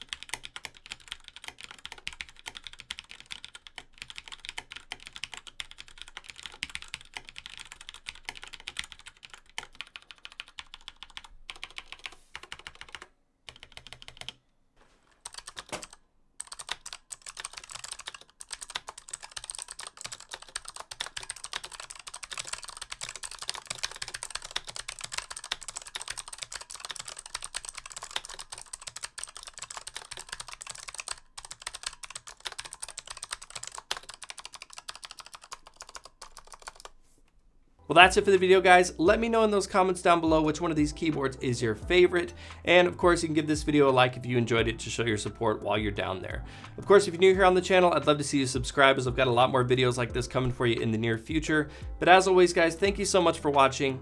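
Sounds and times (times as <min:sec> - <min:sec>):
fast keyboard typing: 0:00.0 - 0:14.4, 0:15.2 - 0:36.9.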